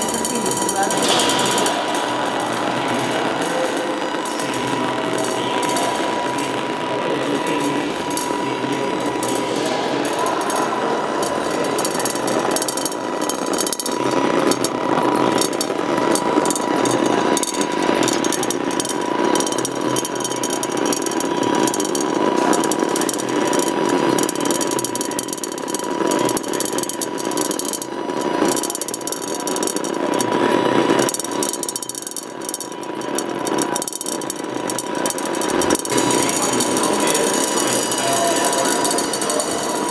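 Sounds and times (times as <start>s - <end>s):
crackling rattling noise: 0.0s - 39.9s
steady high electronic tone: 35.4s - 39.9s.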